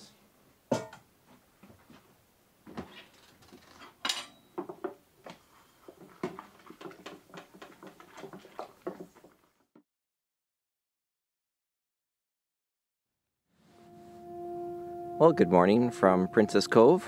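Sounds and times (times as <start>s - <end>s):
dishes clinking in a sink: 0.7s - 1.0s, 4.0s - 9.1s.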